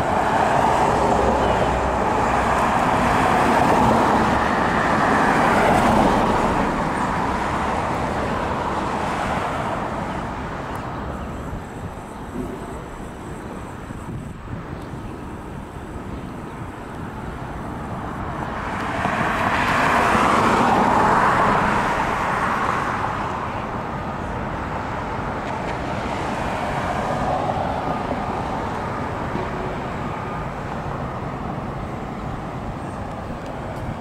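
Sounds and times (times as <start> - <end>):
car passing by: 0.0 - 11.0, 18.0 - 34.0
steady roadway noise: 0.0 - 34.0.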